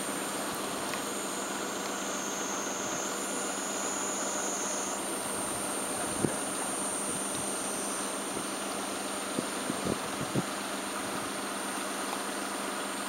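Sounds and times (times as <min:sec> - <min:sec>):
higher-pitched cicada: 0:00.0 - 0:10.4
wind hiss: 0:00.0 - 0:12.0
cicadas droning: 0:00.0 - 0:13.0.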